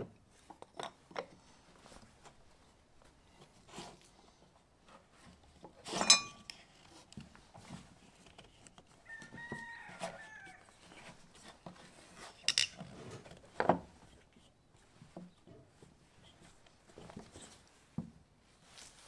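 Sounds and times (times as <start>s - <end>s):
wood and metal pieces knocking: 6.0s - 6.5s, 12.5s - 12.8s.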